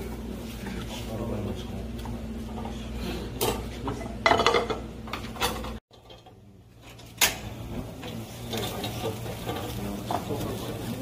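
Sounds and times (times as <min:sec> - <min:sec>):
low kitchen hum: 0:00.0 - 0:11.0
frying pan and utensils clattering: 0:03.4 - 0:11.0.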